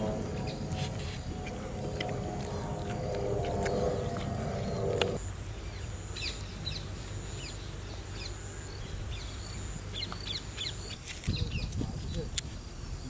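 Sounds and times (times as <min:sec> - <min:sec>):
steady low rumble: 0:00.0 - 0:07.8
small birds chirping: 0:00.0 - 0:13.0.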